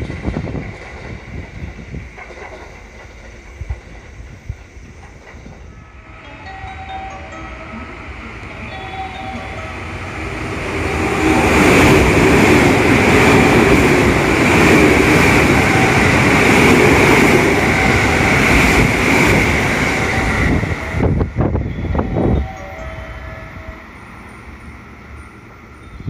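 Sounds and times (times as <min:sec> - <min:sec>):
wheels clacking over rail joints: 0:00.0 - 0:05.7
train passing on rails: 0:00.0 - 0:26.0
high-pitched rail ring: 0:05.6 - 0:10.3.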